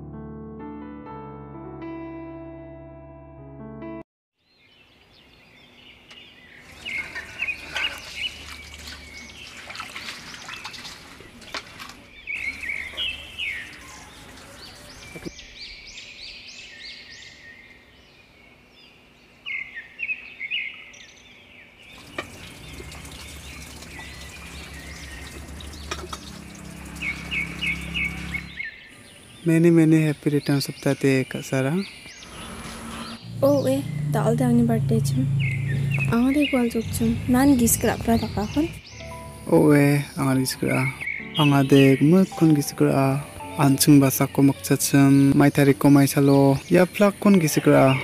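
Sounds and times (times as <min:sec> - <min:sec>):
birds chirping: 0:04.4 - 0:48.0
dishes clinking and splashing: 0:06.7 - 0:15.3, 0:21.9 - 0:28.3.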